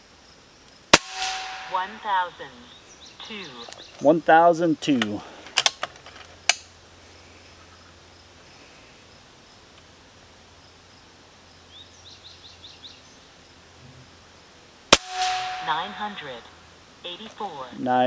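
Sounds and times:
air rifle shot: 0:00.9 - 0:02.3, 0:14.9 - 0:16.3
bird chirping: 0:01.6 - 0:04.2, 0:10.6 - 0:13.6.

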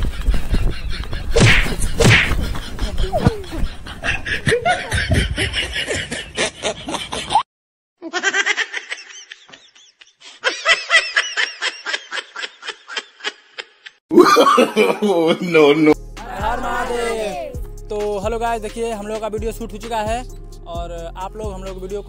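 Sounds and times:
people laughing: 0:02.4 - 0:07.4, 0:08.0 - 0:17.6.

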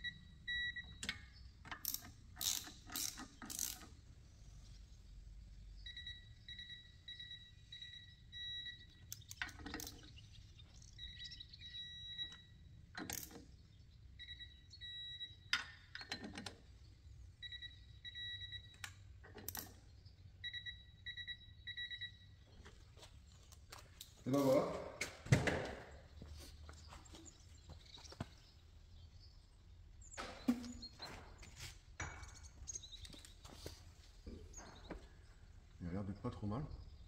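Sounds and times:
socket ratchet clicks: 0:01.0 - 0:03.9.

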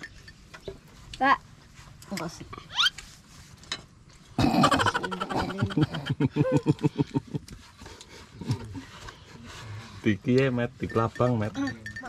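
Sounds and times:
person laughing loudly: 0:04.5 - 0:07.4.

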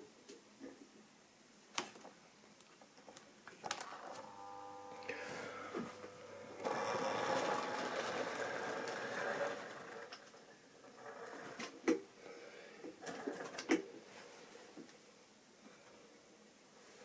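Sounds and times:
small electric motor whirring: 0:03.8 - 0:10.2
model train wheels on rails: 0:06.6 - 0:11.7.

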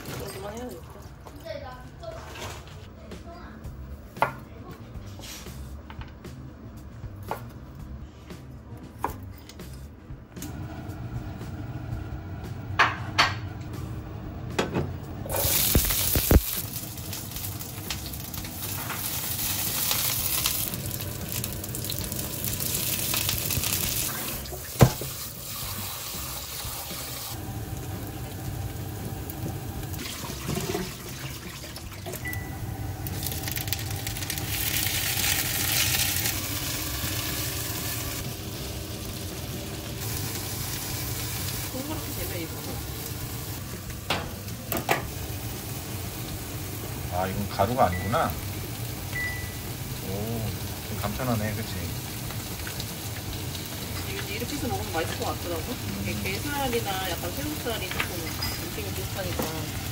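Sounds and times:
food sizzling in a pan: 0:15.2 - 0:59.9.

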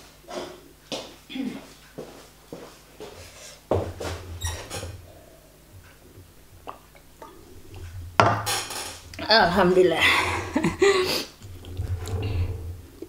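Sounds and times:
knocks and rustles: 0:03.7 - 0:05.0, 0:07.6 - 0:09.7
person gulping and swallowing: 0:06.6 - 0:08.0.

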